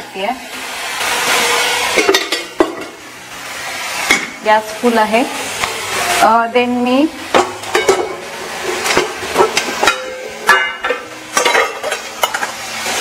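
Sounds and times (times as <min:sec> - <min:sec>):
steel containers clinking on counter: 0:08.9 - 0:12.6.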